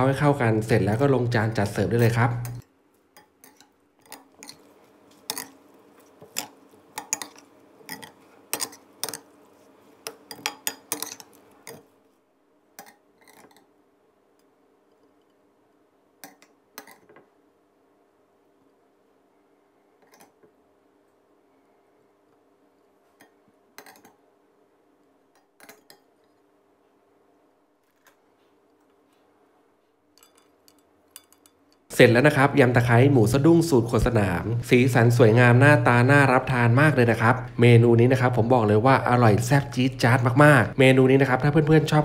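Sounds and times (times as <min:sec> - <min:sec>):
faint steady hum: 0:00.0 - 0:42.0
metal spoon clinking on glass bowl: 0:30.2 - 0:31.9.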